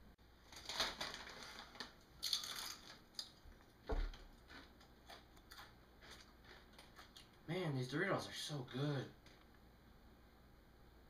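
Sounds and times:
chip bag rustling: 0.4 - 3.4
chips crunching: 0.5 - 7.4.

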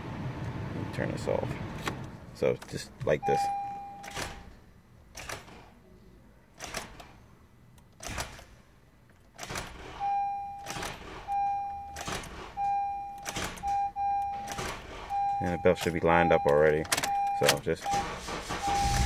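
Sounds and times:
dashboard warning chime: 3.1 - 4.2, 10.0 - 10.7, 11.3 - 12.0, 12.6 - 19.0
car starter bursts: 17.0 - 19.0.

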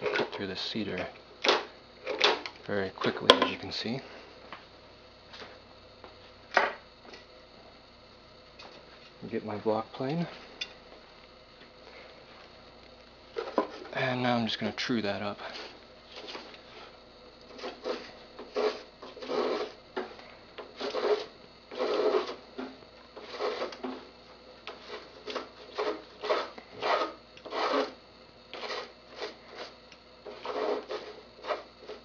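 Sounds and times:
block plane shaving wood: 17.5 - 19.8, 20.8 - 22.4, 23.2 - 24.0, 24.7 - 32.0.

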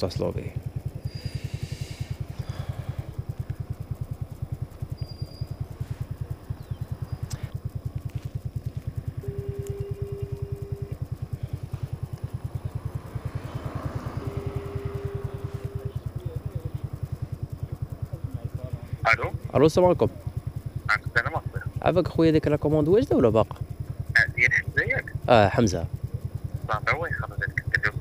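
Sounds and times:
moped engine idling: 0.0 - 28.0
phone ringback tone: 9.2 - 11.0, 13.4 - 16.0.

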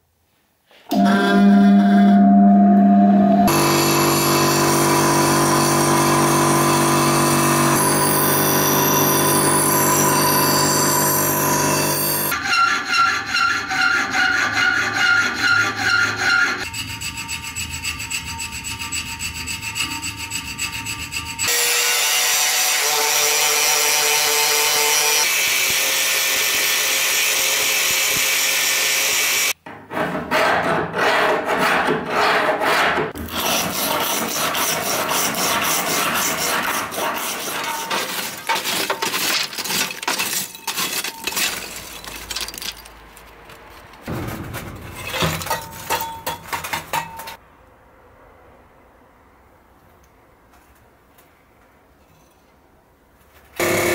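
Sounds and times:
angle grinder whine: 0.9 - 12.3
file rasping on steel: 12.0 - 24.4, 30.3 - 39.7.

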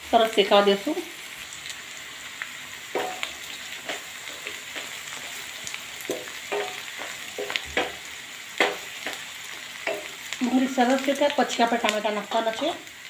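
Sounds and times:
vegetables sizzling in hot oil: 0.0 - 13.0
spatula scraping a pan: 2.9 - 10.2.

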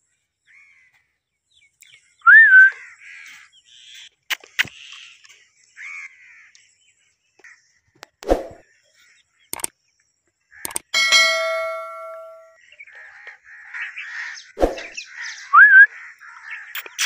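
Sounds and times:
sharp clicks: 9.5 - 9.7, 10.6 - 10.9, 16.8 - 17.0.

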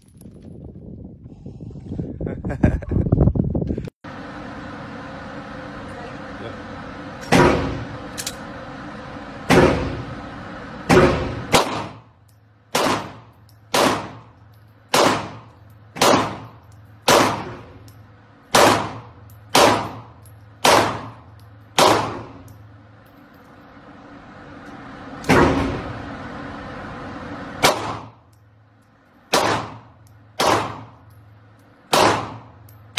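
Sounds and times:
pistol shots echoing indoors: 31.9 - 32.4.

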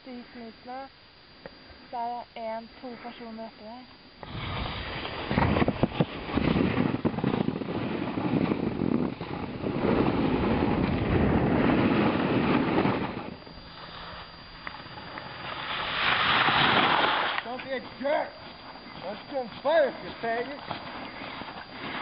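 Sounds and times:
hiss of sprayed snow: 4.2 - 6.9, 15.5 - 17.4
wind buffeting microphone: 4.2 - 13.4
snowboard edges scraping snow: 4.2 - 14.2, 15.3 - 22.0.

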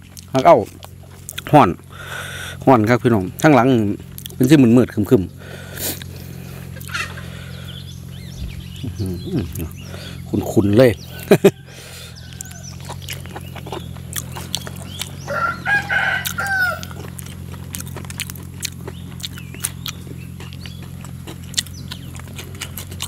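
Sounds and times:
wet chewing and mouth clicks: 0.0 - 1.9, 3.1 - 4.7, 5.8 - 7.1, 12.2 - 23.0
steady low hum: 0.0 - 23.0
rooster crowing: 11.0 - 13.0, 15.2 - 17.1.

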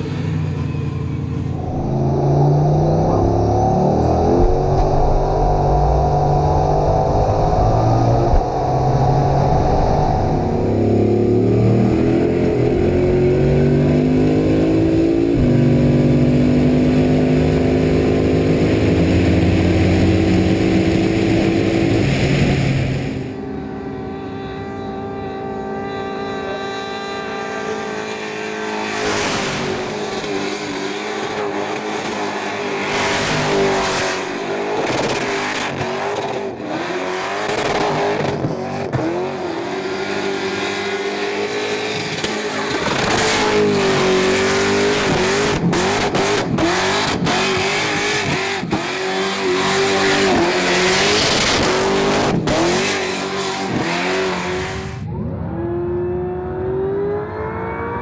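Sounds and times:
car engine revving: 0.0 - 58.0
car accelerating away: 1.4 - 58.0.

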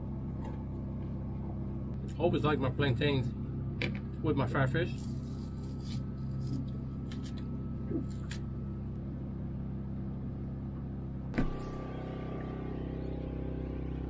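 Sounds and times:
low machine hum: 0.0 - 14.0
short thump: 11.4 - 11.9.

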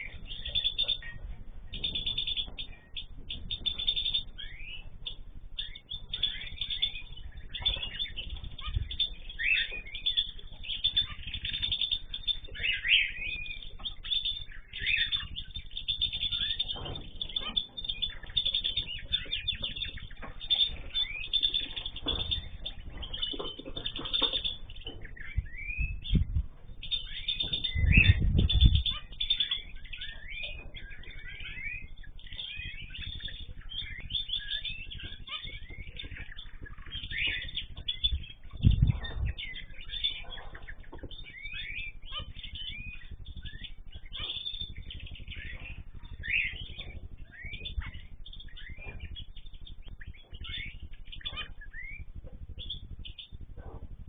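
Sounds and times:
small cage birds chirping: 0.0 - 54.0
low thuds: 31.9 - 54.0.

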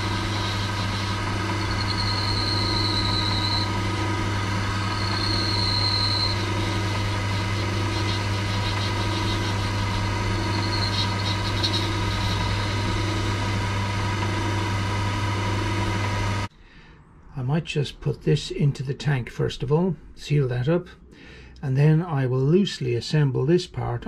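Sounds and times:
lathe humming: 0.0 - 16.5.

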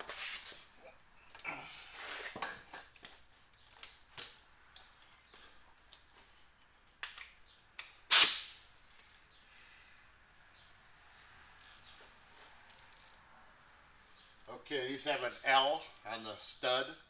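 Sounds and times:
spray can hiss: 8.1 - 8.6.

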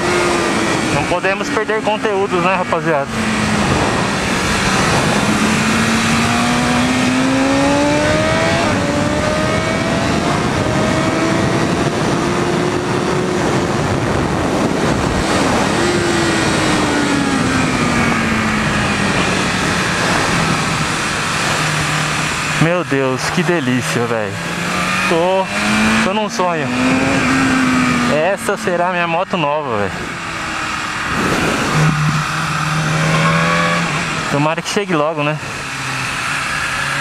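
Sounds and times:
motorcycle engine revving: 0.0 - 37.0
wind rush over microphone: 2.6 - 23.5, 30.0 - 34.3.

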